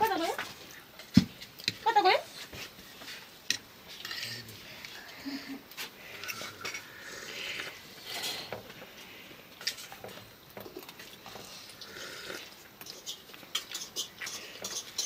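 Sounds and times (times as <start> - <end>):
chewing: 10.6 - 15.0
child slurping noodles: 11.5 - 15.0.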